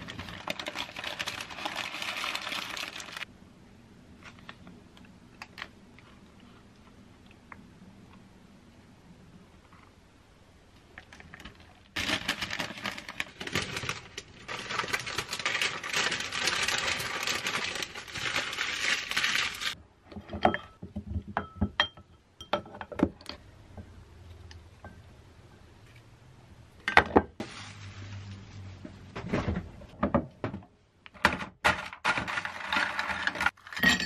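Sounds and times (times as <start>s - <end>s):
wrapping crinkling: 0.0s - 3.3s, 11.1s - 19.8s.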